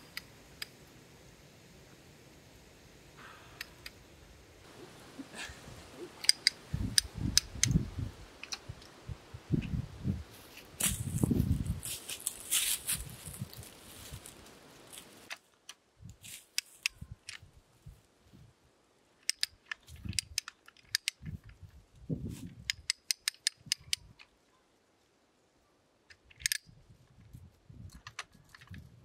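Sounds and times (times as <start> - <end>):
rustling: 4.6 - 18.5
ratcheting pipe threader clicking: 6.2 - 7.8, 19.2 - 21.6, 22.6 - 24.2, 26.1 - 26.6.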